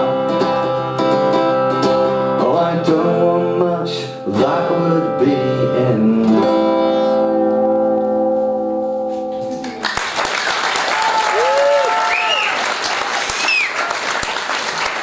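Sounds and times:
acoustic guitar strumming: 0.0 - 9.8.

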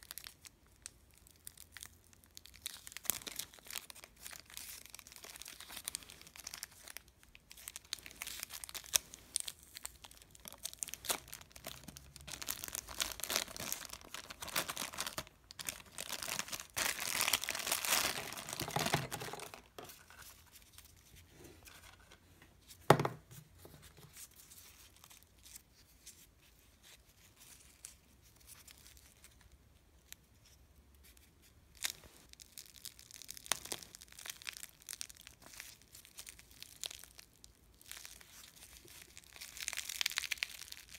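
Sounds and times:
plastic and paper crinkling: 0.0 - 29.6, 30.4 - 40.9.

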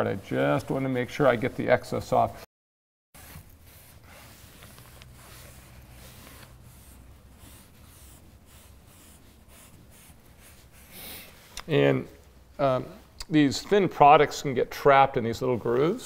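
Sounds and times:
cloth rag rubbing wood: 0.0 - 2.3, 3.2 - 11.6.

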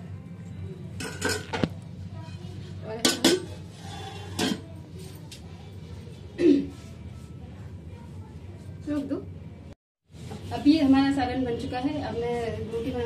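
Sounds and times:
steel utensils clinking on pot: 1.0 - 1.6, 2.2 - 4.8.

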